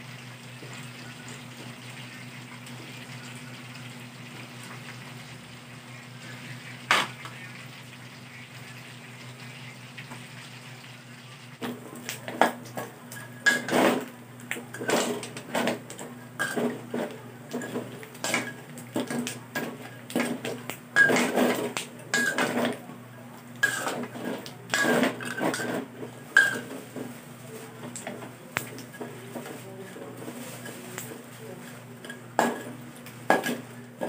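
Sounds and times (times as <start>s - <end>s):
metal spatula scraping a wok: 13.1s - 14.1s, 14.7s - 20.4s, 21.0s - 22.8s, 23.6s - 27.0s.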